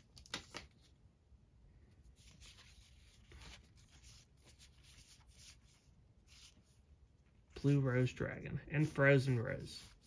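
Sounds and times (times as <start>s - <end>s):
trading cards rustling: 0.0s - 1.0s, 2.1s - 6.6s.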